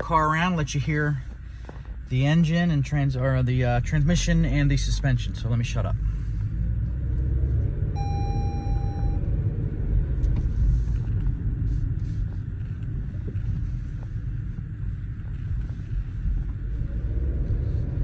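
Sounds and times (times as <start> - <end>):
car engine and road rumble: 0.0 - 18.0
electronic beep: 8.0 - 9.3.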